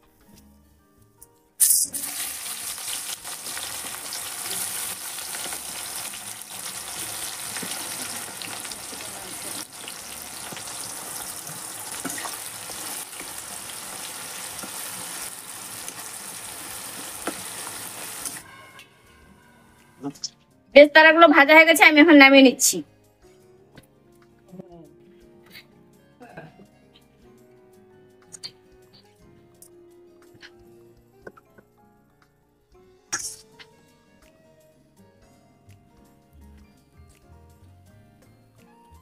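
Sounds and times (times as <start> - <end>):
onions sizzling in hot oil: 1.6 - 18.4.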